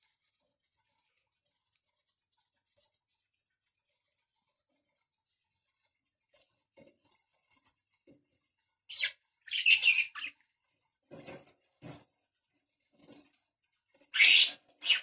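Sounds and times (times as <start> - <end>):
budgerigar chirping and chattering: 8.9 - 10.3, 14.1 - 15.0.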